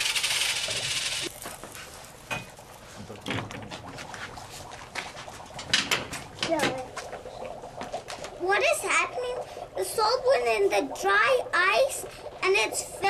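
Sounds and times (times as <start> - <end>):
water bubbling: 3.8 - 13.0.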